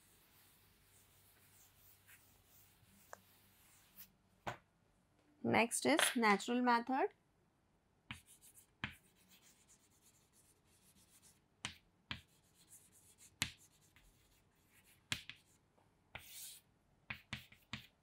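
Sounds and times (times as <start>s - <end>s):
chalk scraping: 0.0s - 4.1s, 8.1s - 11.4s, 12.2s - 15.6s, 16.2s - 16.6s
chalk tapping on chalkboard: 8.1s - 10.3s, 10.9s - 15.6s, 16.2s - 18.0s.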